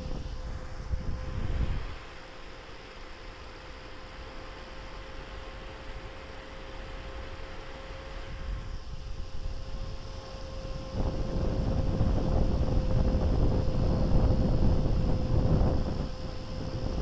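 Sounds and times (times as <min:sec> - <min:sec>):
wind buffeting microphone: 0:08.4 - 0:17.0.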